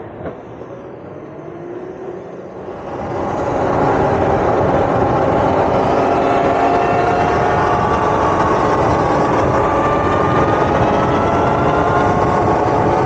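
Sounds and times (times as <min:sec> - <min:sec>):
wind rushing on microphone: 0:02.5 - 0:13.0
electric motors whining: 0:02.6 - 0:13.0.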